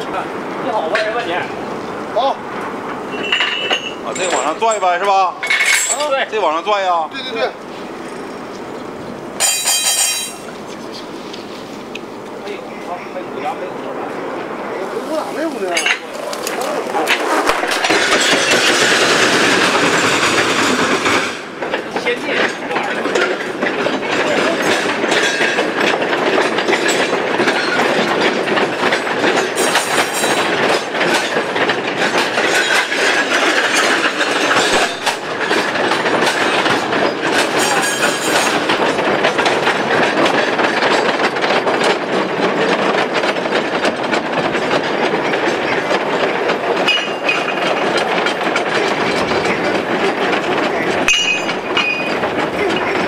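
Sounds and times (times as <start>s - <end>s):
mine car wheels clattering on track: 0.0s - 14.2s, 15.0s - 53.0s.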